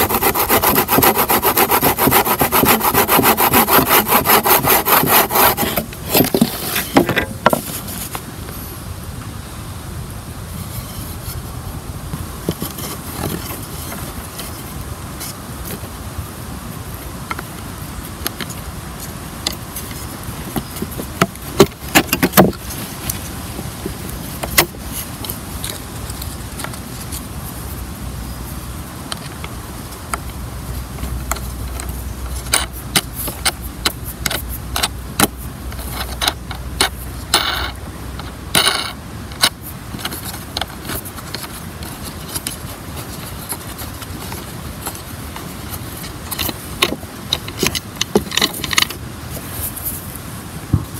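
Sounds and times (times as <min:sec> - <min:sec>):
short scrapes: 0:00.0 - 0:08.2.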